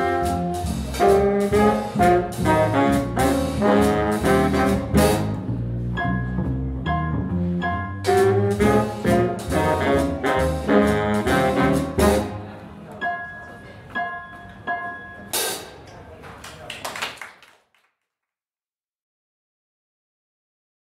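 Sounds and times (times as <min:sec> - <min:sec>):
jazz band with brass: 0:00.0 - 0:12.6.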